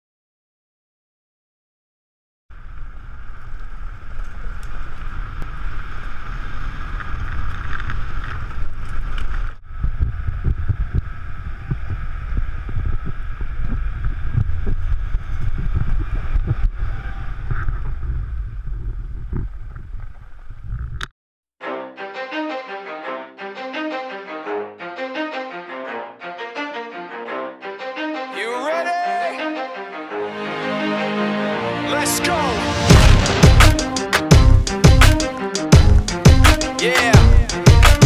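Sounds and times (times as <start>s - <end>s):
wind buffeting microphone: 5.1s - 21.0s.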